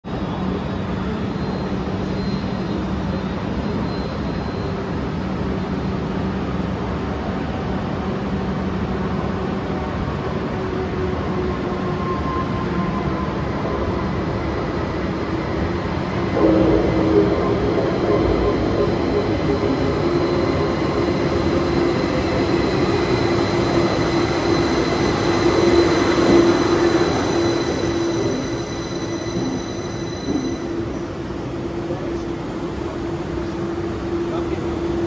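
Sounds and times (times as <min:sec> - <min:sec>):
train arriving with whine: 0:00.0 - 0:35.0
station hum and rumble: 0:01.1 - 0:35.0.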